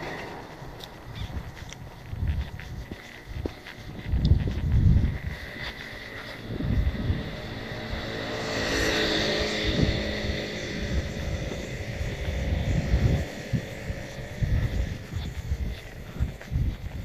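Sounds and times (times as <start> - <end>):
vehicle driving past: 0.0 - 0.8, 5.2 - 15.2.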